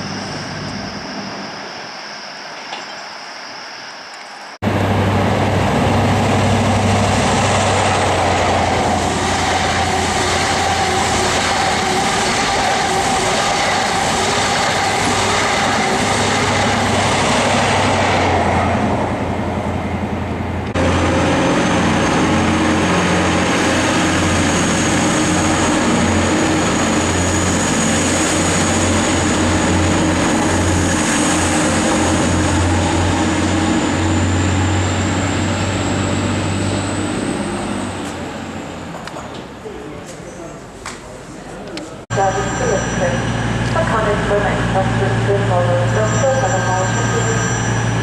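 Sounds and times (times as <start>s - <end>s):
passenger train passing: 0.0s - 48.0s
diesel train engines idling: 4.6s - 48.0s
thin high whine: 42.1s - 48.0s.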